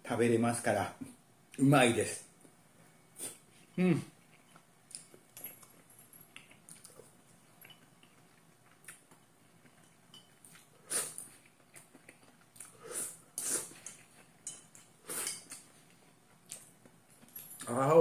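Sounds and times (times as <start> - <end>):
quiet chewing: 3.2 - 17.7.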